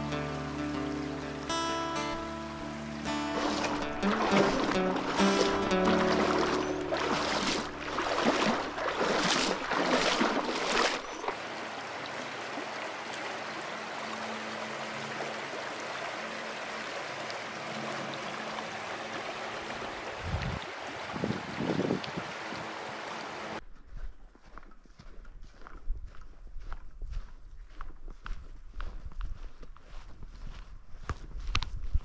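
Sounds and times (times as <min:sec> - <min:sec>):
river running over stones: 0:00.0 - 0:23.6.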